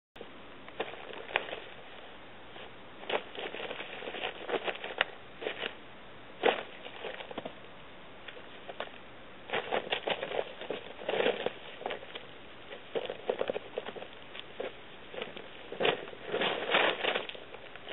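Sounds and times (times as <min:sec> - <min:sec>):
plastic tarp rustling and crinkling: 0:09.5 - 0:17.9.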